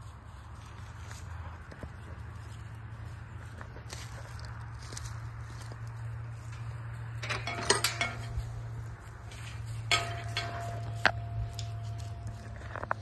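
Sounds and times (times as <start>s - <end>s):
metal gate clanking: 6.5s - 13.0s.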